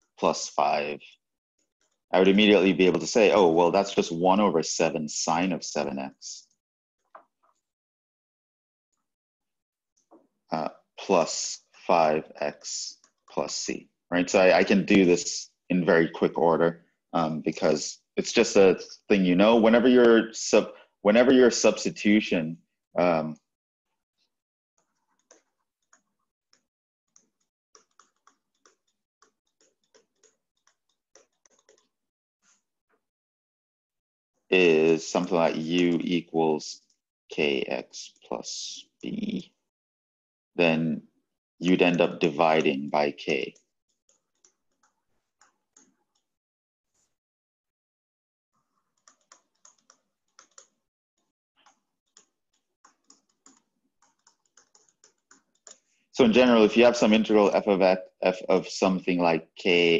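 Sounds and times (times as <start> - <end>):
stylus tapping on tablet screen: 24.8 - 32.0, 44.0 - 46.4, 48.8 - 50.8, 51.6 - 55.9.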